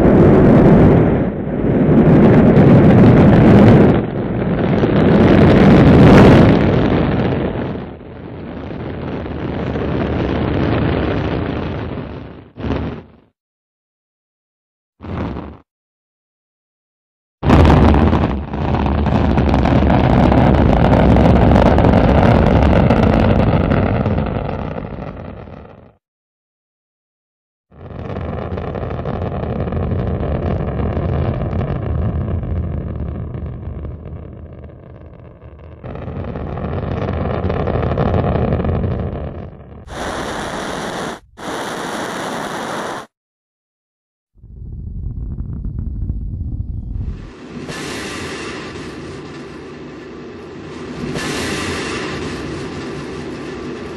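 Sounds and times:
hissing rush of noise: 39.9s - 43.1s, 47.0s - 49.8s, 50.8s - 53.9s
rocket engines roaring: 39.9s - 43.1s, 44.4s - 53.9s.

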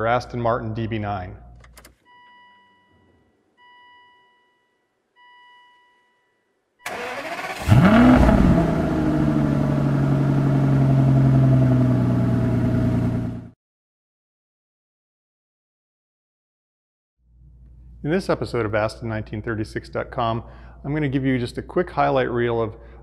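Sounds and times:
car engine starting and idling: 6.9s - 13.5s.

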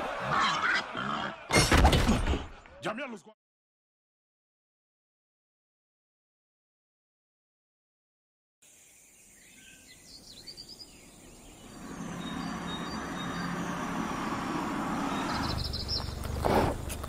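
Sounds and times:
bird chirps: 8.6s - 16.4s.

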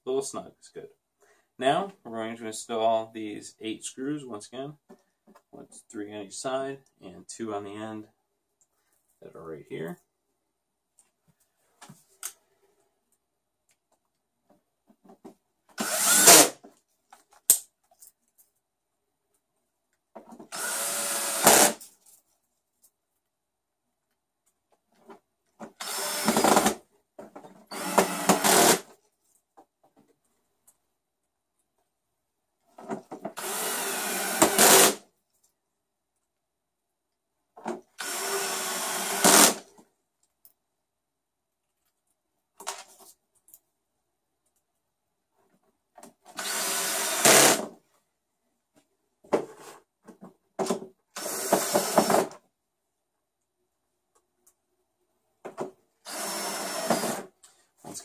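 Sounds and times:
cordless drill driving screws: 15.8s - 16.6s, 20.5s - 21.8s, 25.8s - 26.8s, 27.7s - 28.9s, 33.4s - 35.0s, 38.0s - 39.6s, 46.3s - 47.7s, 51.2s - 52.3s, 56.0s - 57.3s.

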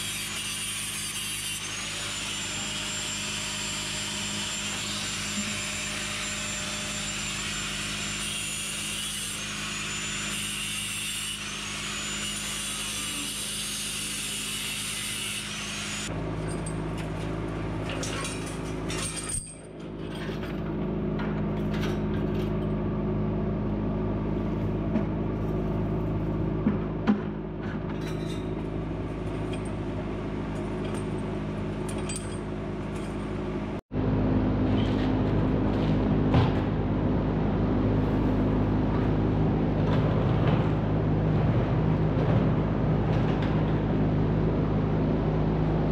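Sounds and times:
angle grinder cutting wire: 0.0s - 16.1s
low steady machine noise: 11.0s - 45.9s.

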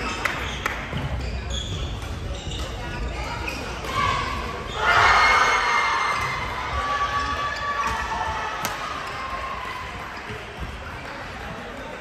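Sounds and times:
crowd shouting and cheering: 3.8s - 10.8s.

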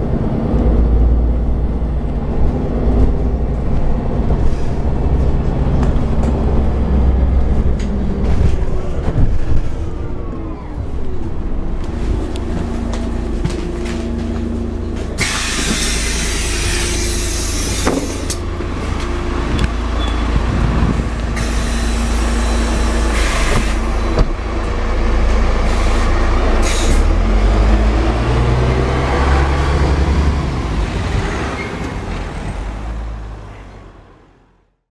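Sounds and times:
bus engine running: 0.0s - 34.6s
compressed air hisses: 15.2s - 18.3s.

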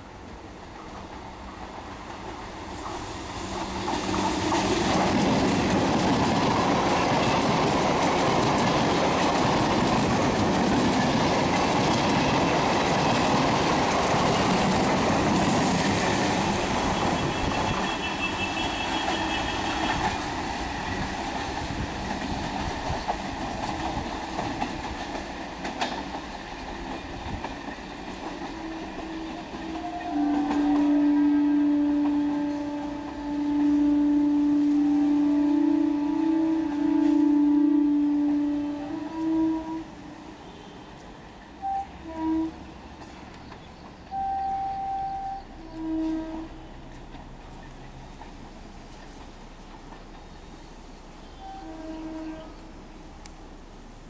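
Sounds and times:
train wheels on rails: 0.0s - 54.0s
train horn: 15.6s - 20.5s, 28.4s - 42.8s, 44.1s - 47.2s, 51.2s - 53.1s.

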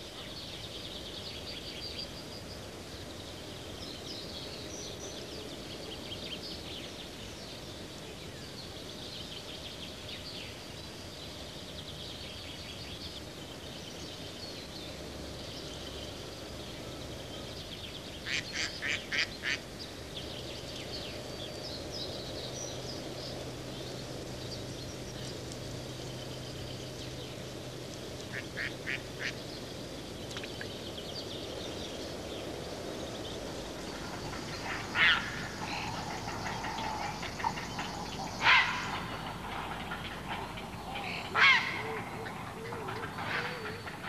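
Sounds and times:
steady low hiss: 0.0s - 44.0s
waterbirds calling: 12.8s - 44.0s.

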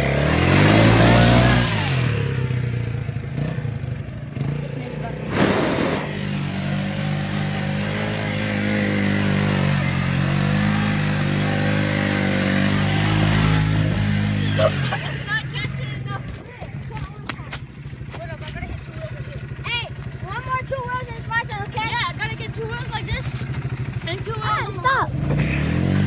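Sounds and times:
atv engine running: 0.0s - 26.0s.

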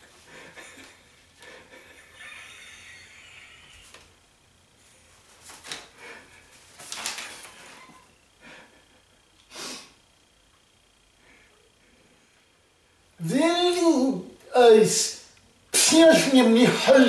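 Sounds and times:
man's stifled laughter: 0.0s - 4.0s.

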